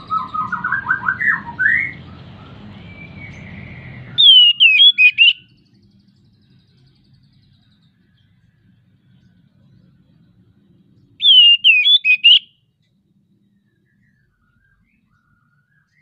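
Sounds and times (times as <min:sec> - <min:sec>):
bird singing whistled notes: 0:00.0 - 0:08.3, 0:11.2 - 0:12.7, 0:13.5 - 0:16.0.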